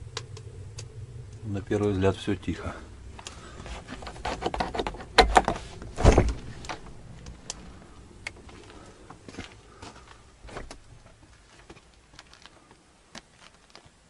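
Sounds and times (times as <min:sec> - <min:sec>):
heavy thumps: 0:03.1 - 0:07.0.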